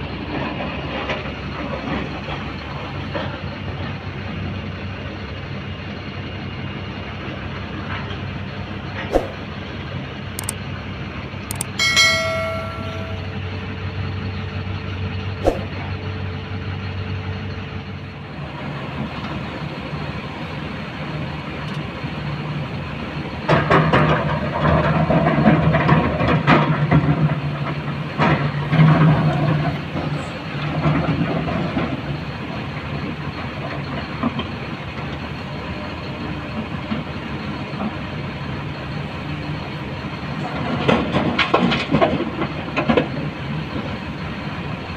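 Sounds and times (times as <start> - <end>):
heavy diesel machinery running: 0.0 - 44.9
short chime: 11.5 - 13.4.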